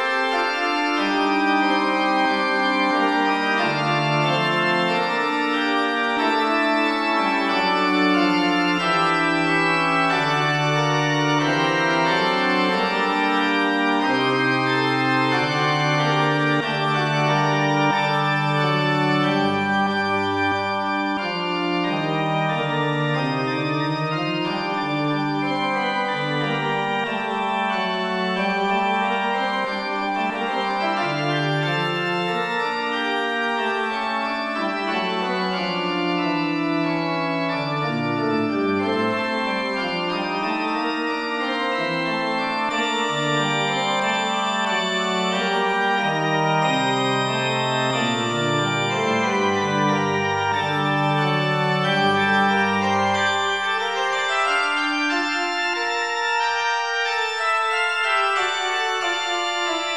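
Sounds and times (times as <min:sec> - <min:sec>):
synthesized pipe organ: 0:00.0 - 0:59.9.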